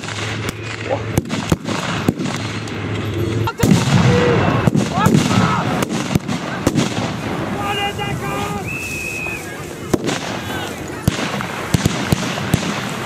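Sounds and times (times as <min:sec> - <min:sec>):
blank gunshots: 0:00.0 - 0:02.9, 0:03.6 - 0:07.6, 0:09.8 - 0:13.0
deep pyrotechnic blast: 0:00.0 - 0:08.8, 0:09.6 - 0:13.0.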